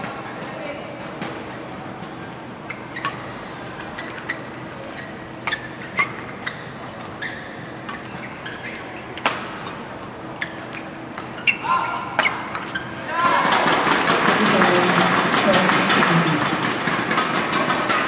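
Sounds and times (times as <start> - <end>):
hum of large hall: 0.0 - 18.0
rackets hitting shuttlecock: 9.2 - 9.8, 12.0 - 12.8.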